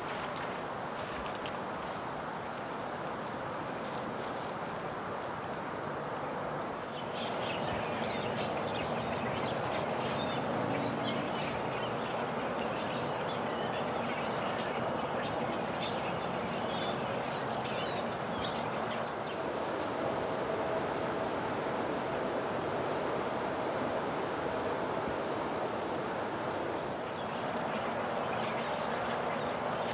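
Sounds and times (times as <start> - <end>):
rushing outdoor background: 0.0 - 29.9.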